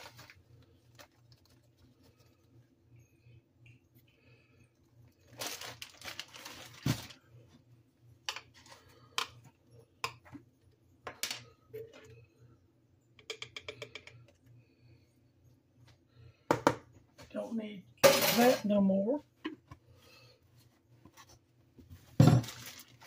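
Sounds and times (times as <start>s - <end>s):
spoon clicking against jars: 13.2s - 14.3s
spoon tapping in a jar: 13.2s - 14.3s.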